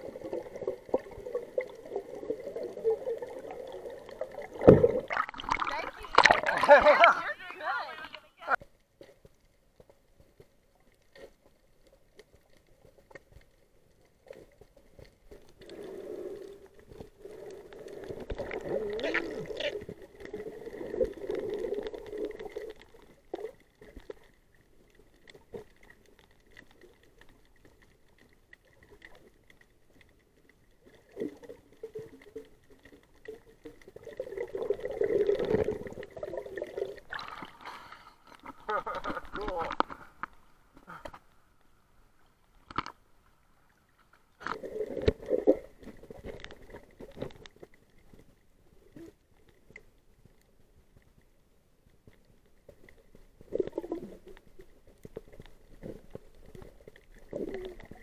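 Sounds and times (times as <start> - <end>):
underwater gurgling and bubbling: 0.0 - 7.0, 14.2 - 30.0, 30.7 - 40.4, 44.4 - 48.1, 52.8 - 58.0.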